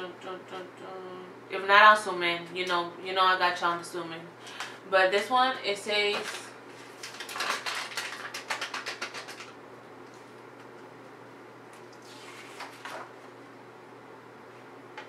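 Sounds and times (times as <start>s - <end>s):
snack packet crinkling: 6.1s - 9.6s.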